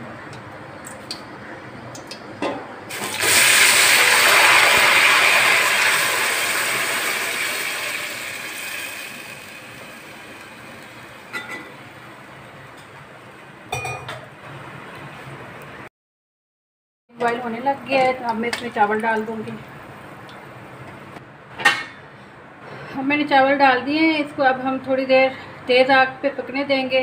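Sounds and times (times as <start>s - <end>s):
syrup sizzling in hot oil: 2.9s - 11.4s.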